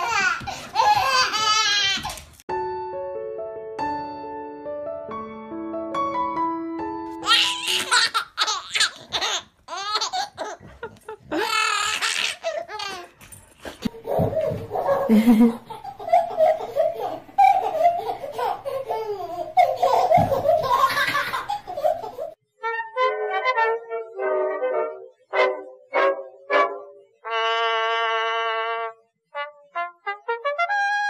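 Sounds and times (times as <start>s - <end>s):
baby laughing: 0.0s - 2.2s, 7.2s - 13.2s, 13.8s - 22.4s
lower-pitched laughter: 13.9s - 22.4s.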